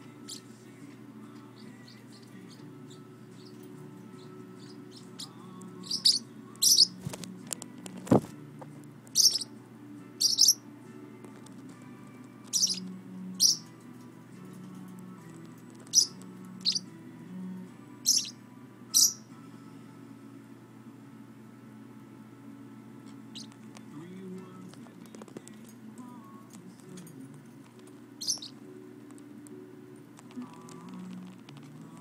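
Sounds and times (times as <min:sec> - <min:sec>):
bird chirping sharply: 0:04.6 - 0:07.0, 0:09.2 - 0:09.5, 0:10.2 - 0:10.6, 0:12.5 - 0:13.7, 0:15.9 - 0:16.9, 0:18.0 - 0:18.4, 0:19.0 - 0:19.3, 0:23.3 - 0:23.5, 0:28.2 - 0:28.6.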